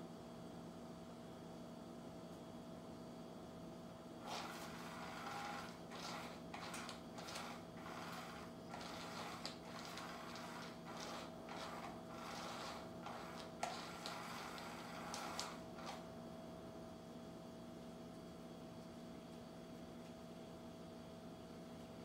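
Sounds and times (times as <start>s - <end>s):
toy motor whirring: 4.2s - 16.0s.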